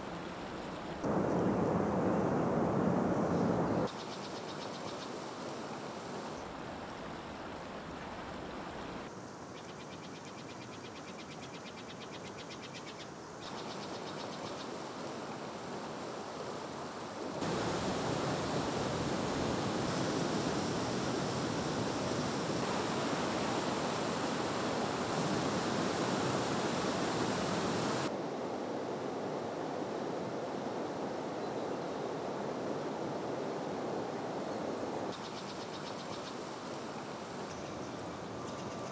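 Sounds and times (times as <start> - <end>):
forest ambience: 0.0 - 18.3, 34.1 - 38.9.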